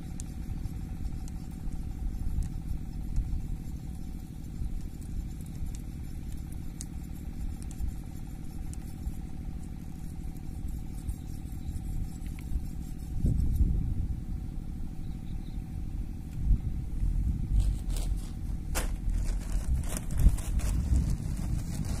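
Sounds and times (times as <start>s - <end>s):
small engine running: 17.5s - 22.0s.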